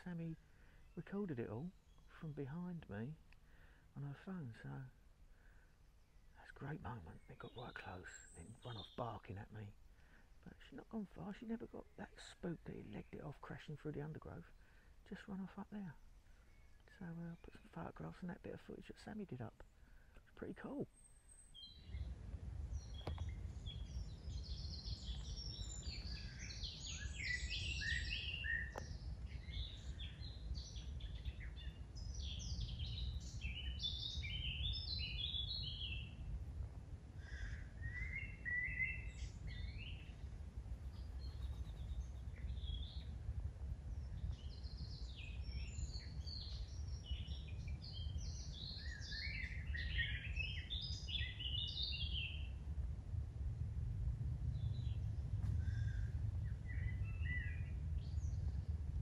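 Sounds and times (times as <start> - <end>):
songbirds chirping: 0.0 - 59.0
steady low rumble: 21.6 - 59.0.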